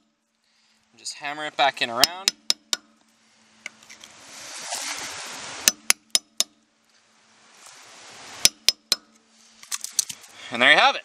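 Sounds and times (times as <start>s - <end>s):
rustling: 3.0s - 5.7s, 6.8s - 8.5s, 9.1s - 10.5s.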